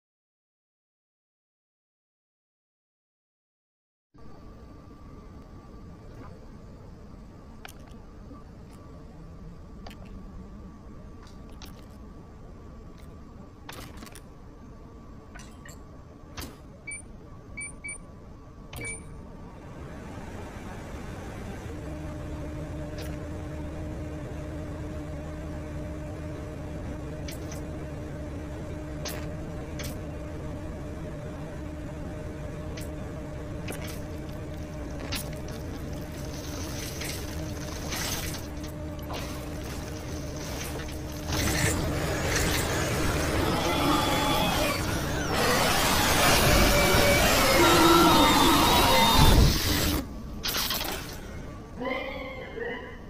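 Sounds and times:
microwave oven humming: 4.2 - 53.0.

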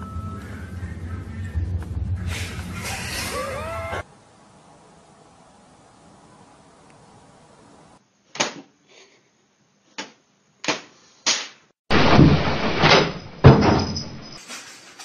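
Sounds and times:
loud clattering and banging: 11.9 - 15.0.

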